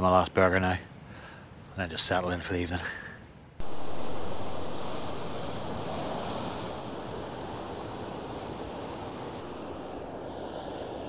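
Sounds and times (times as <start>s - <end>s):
waves breaking on a beach: 3.6s - 11.0s
wind on microphone: 3.6s - 11.0s.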